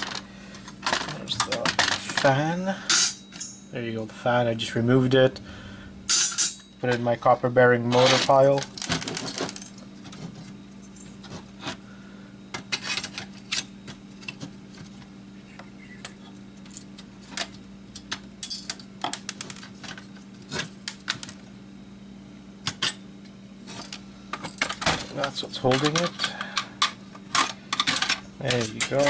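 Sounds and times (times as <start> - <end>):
steady low hum: 0.0 - 29.0
metal and plastic parts clinking: 0.8 - 3.6, 7.9 - 9.7, 23.8 - 29.0.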